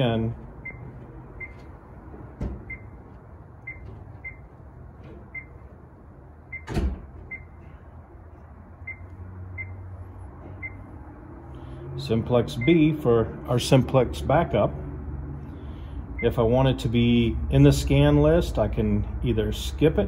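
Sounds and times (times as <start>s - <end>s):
high key beeps: 0.6s - 1.8s, 2.7s - 3.0s, 3.6s - 4.6s, 5.3s - 5.6s, 7.3s - 7.6s, 8.8s - 9.9s, 10.6s - 10.9s, 12.6s - 12.9s.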